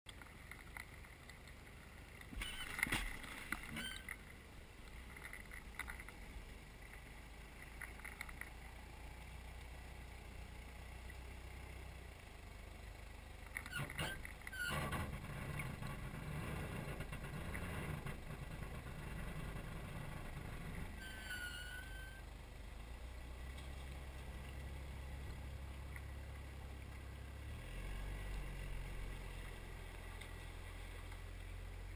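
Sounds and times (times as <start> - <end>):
suv engine running low: 0.1 - 31.9
knocks and splashes: 2.3 - 3.8
short high tone: 21.0 - 22.2.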